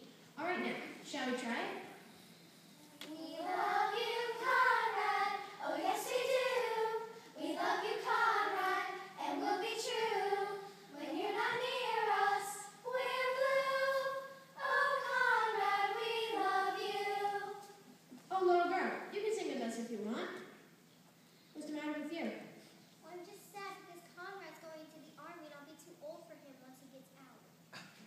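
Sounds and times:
girls choir singing unaccompanied: 2.8s - 17.9s.

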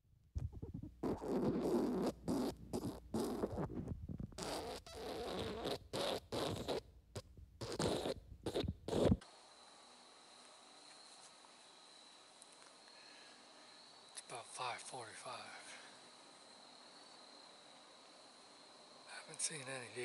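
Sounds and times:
comic fart sound effects: 0.5s - 9.2s.

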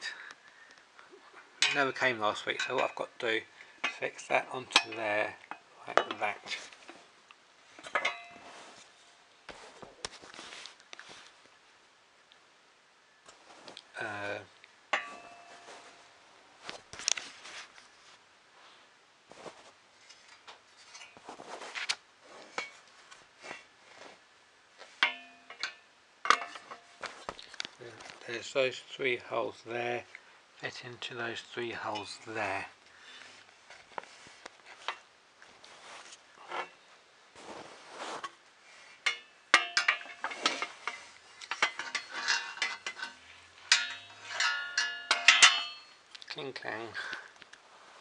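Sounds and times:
rustling: 0.5s - 11.6s, 13.2s - 28.8s, 30.0s - 48.0s
ringing metal clink: 7.8s - 8.5s, 15.0s - 15.9s, 25.0s - 27.0s, 39.1s - 40.7s, 41.5s - 46.0s
metal parts clicking and knocking: 39.0s - 46.0s.

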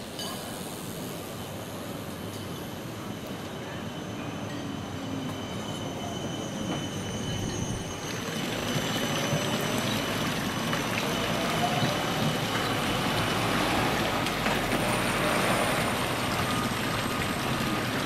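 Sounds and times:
tram running past: 0.9s - 18.0s
fountain water splashing: 14.8s - 18.0s.

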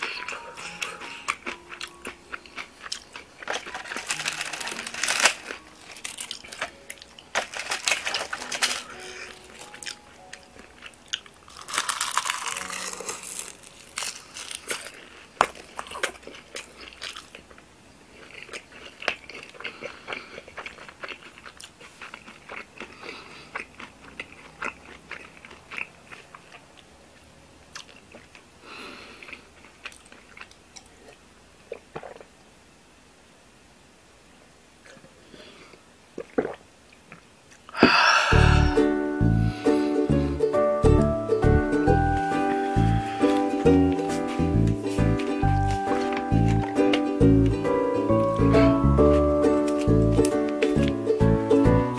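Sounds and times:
wet crunchy chewing: 0.0s - 26.9s.

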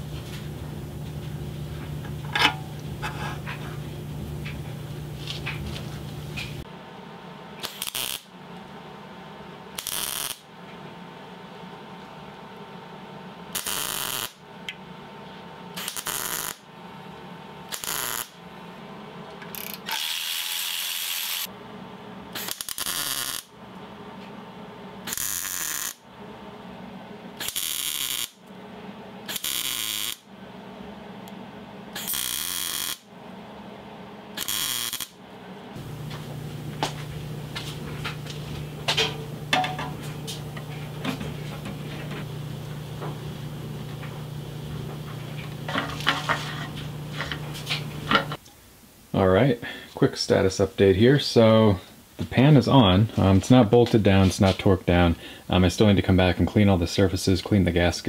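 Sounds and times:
welder low hum: 0.0s - 48.4s
welding arc crackling: 7.6s - 8.3s, 9.8s - 10.5s, 13.6s - 14.4s, 15.8s - 16.7s, 17.7s - 18.4s, 22.4s - 23.5s, 25.1s - 26.0s, 27.4s - 28.4s, 29.3s - 30.2s, 32.0s - 33.1s, 34.4s - 35.2s.

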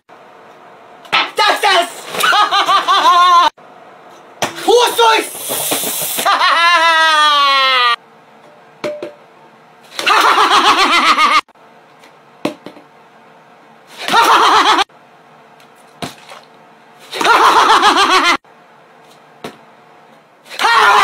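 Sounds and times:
man laughing loudly: 2.2s - 3.6s, 6.2s - 8.0s, 10.0s - 11.5s, 14.0s - 14.9s, 17.2s - 18.4s.

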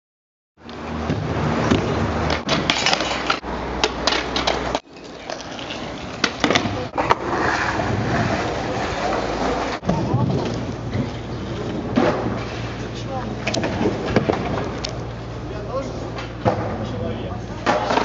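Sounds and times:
skateboard wheels rolling on concrete: 0.6s - 18.0s
skateboard clacking: 0.7s - 12.7s, 17.6s - 18.0s.

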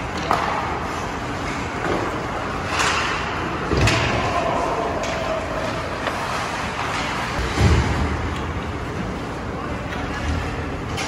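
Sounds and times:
hockey stick and puck clacks: 0.0s - 4.3s
echoing hall noise: 0.0s - 11.0s.

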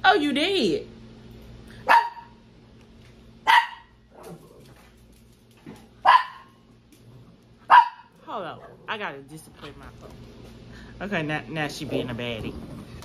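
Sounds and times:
dog barking: 1.8s - 2.4s, 3.4s - 4.3s, 6.0s - 6.6s, 7.7s - 8.2s.

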